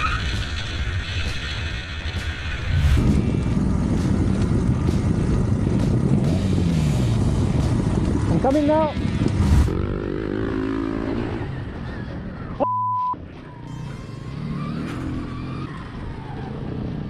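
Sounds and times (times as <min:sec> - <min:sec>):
motorcycle engines running: 0:00.0 - 0:12.6, 0:13.2 - 0:17.0
censor bleep: 0:12.6 - 0:13.2.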